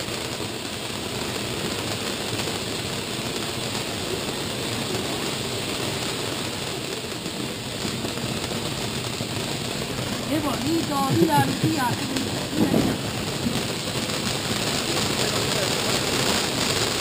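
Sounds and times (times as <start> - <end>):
firework sparks hissing: 0.0 - 17.0.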